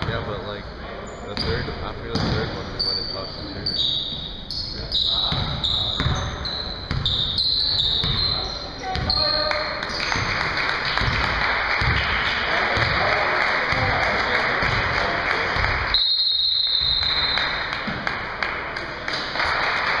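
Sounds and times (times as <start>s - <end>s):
crowd noise in a gymnasium: 0.0s - 20.0s
basketball bouncing on hardwood: 6.9s - 7.1s, 8.9s - 9.3s, 11.0s - 12.1s.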